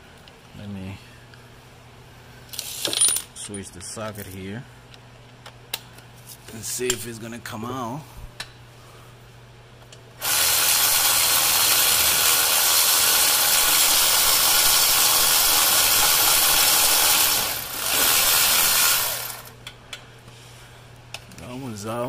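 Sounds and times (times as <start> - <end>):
cordless power tool running: 10.2 - 19.6.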